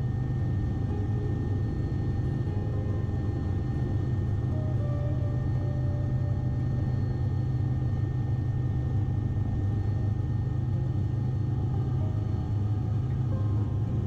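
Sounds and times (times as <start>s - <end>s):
faint whining tones: 0.0s - 14.0s
helicopter rotor drone: 0.0s - 14.0s.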